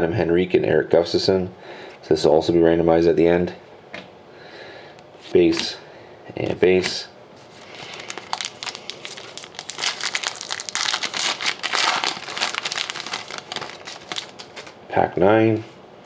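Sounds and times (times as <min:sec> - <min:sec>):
cards rustling: 0:06.8 - 0:14.8
foil wrapper crinkling and tearing: 0:07.6 - 0:14.8.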